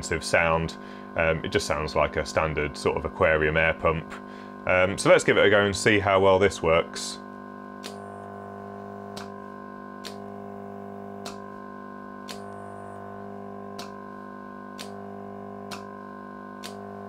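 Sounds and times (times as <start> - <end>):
air pump humming: 0.0 - 17.0
solenoid valve clicks: 9.2 - 9.4, 10.0 - 10.3, 11.2 - 11.5, 13.8 - 14.0, 14.8 - 15.0, 15.7 - 15.9, 16.6 - 16.8.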